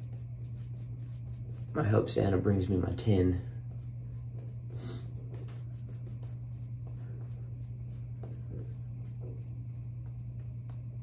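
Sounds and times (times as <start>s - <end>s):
shaving brush strokes on skin: 0.0s - 11.0s
steady low hum: 0.0s - 11.0s.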